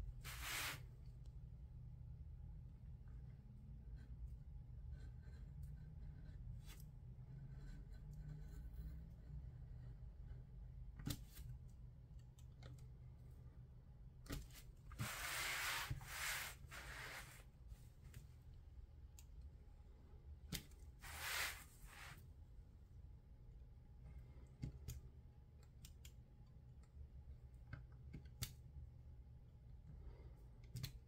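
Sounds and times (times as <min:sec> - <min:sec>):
paper sheet rustling: 0:00.2 - 0:00.8.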